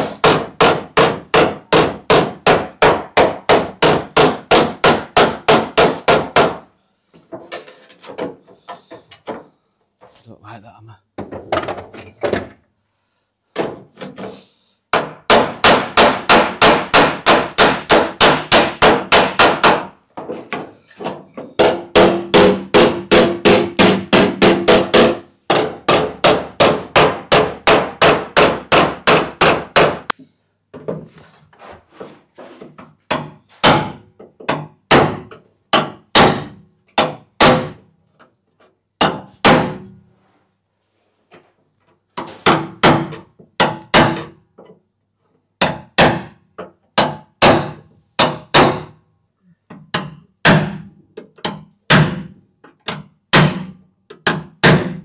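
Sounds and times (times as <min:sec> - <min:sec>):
hammer beating on metal panel: 0:00.0 - 0:06.6, 0:14.9 - 0:20.0, 0:21.6 - 0:30.1, 0:33.1 - 0:37.8, 0:39.0 - 0:39.9, 0:42.4 - 0:44.4, 0:45.6 - 0:46.4, 0:47.0 - 0:49.0, 0:50.0 - 0:52.3, 0:53.3 - 0:55.0.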